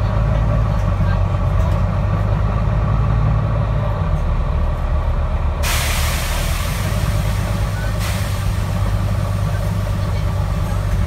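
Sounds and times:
bus engine drone: 0.0s - 11.0s
loud hiss: 5.6s - 10.0s.

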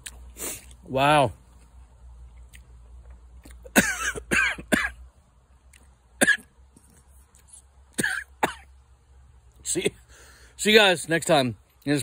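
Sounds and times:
man coughing: 3.7s - 5.0s, 6.2s - 6.5s, 8.0s - 8.7s.

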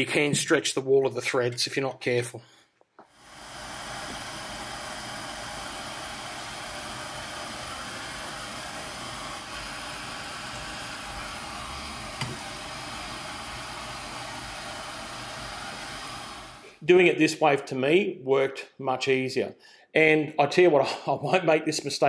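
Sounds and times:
torch flame hissing: 3.1s - 16.8s.

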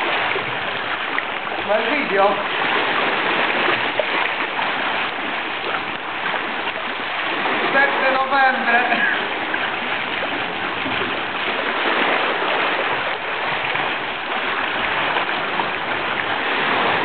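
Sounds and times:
waves lapping on stony shore: 0.0s - 17.0s.

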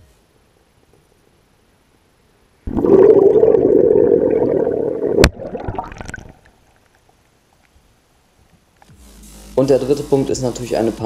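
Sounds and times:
underwater gas bubbling: 2.7s - 6.5s
water churning: 2.7s - 6.5s.

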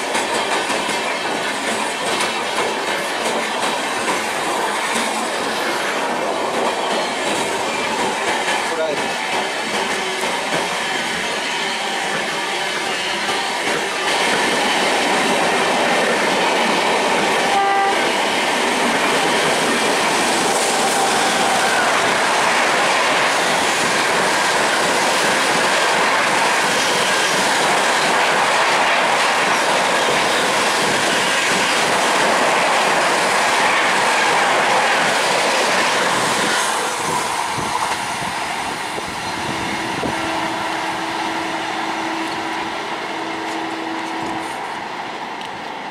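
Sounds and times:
train wheels rumbling on rails: 0.0s - 45.9s
train horn: 17.4s - 18.2s, 39.5s - 44.6s.

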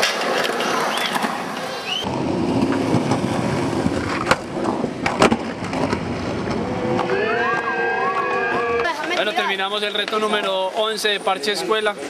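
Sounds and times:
skateboard wheels rolling on concrete: 0.0s - 12.0s
sharp skateboard clacks: 3.8s - 7.1s.

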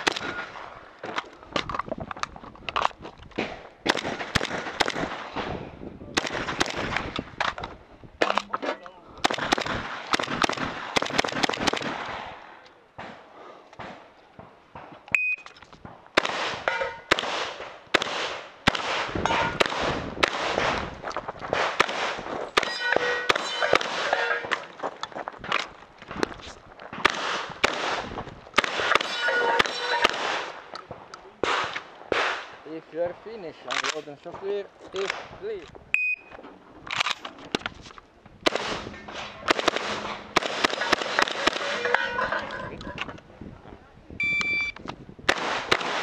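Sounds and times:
shotgun rapid fire: 3.8s - 5.5s, 6.2s - 7.1s, 9.2s - 12.3s, 16.2s - 20.8s, 21.6s - 24.2s, 27.0s - 30.6s, 31.4s - 32.6s, 38.4s - 41.8s, 45.3s - 46.0s
steel targets clanging: 22.6s - 24.6s, 28.8s - 30.4s, 38.8s - 42.8s.

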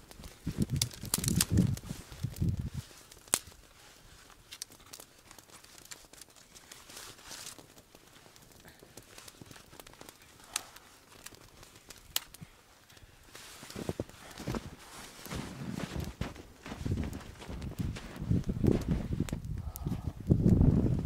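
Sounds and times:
twig fire crackling: 0.0s - 21.0s
sharp snaps of twigs: 0.7s - 2.4s.

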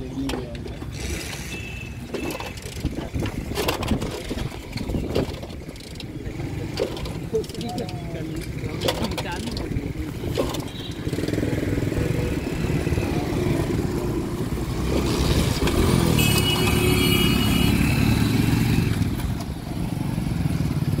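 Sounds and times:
motorcycles revving past: 9.7s - 21.0s.

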